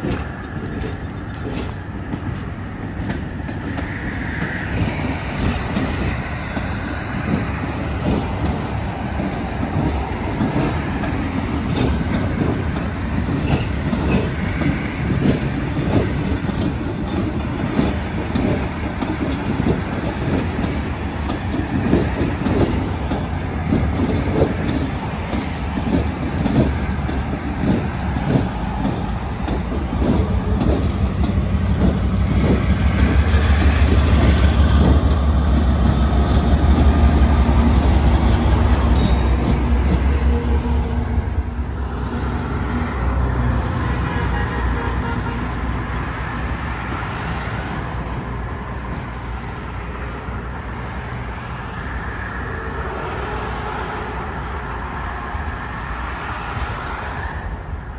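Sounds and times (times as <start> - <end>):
train wheels clacking on rail joints: 0.0 - 45.3
diesel locomotive engine rumble: 0.0 - 57.9.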